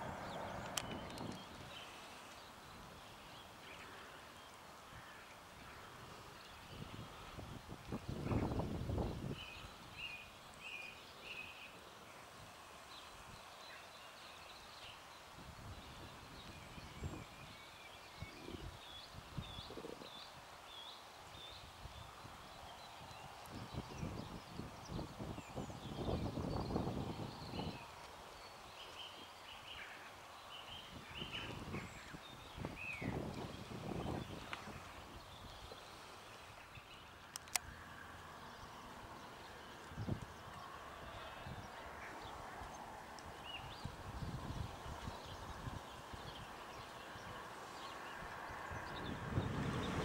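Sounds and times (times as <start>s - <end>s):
low rumbling noise: 0.0s - 1.7s
wind buffeting microphone: 0.0s - 1.9s, 6.6s - 9.8s, 23.0s - 28.0s, 30.9s - 35.8s, 39.9s - 50.0s
small birds chirping: 0.2s - 50.0s.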